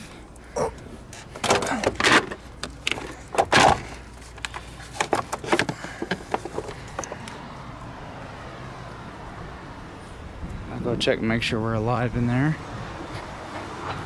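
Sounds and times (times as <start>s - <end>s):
car battery knocks and clicks: 1.3s - 7.3s.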